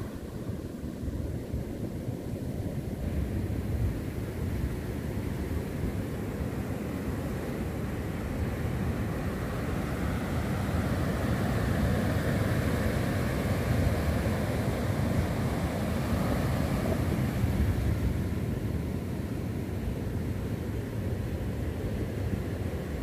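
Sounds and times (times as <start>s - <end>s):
wind rumbling on microphone: 0.0s - 23.0s
surf breaking on beach: 7.6s - 19.9s.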